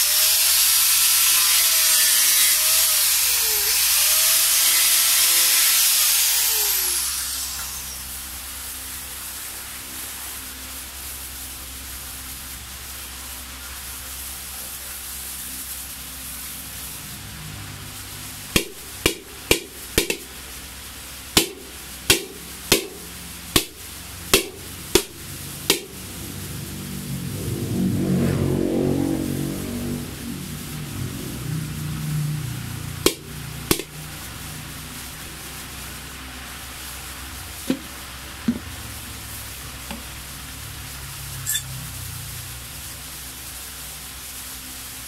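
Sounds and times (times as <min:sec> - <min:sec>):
handheld grinder whining: 0:00.0 - 0:08.2.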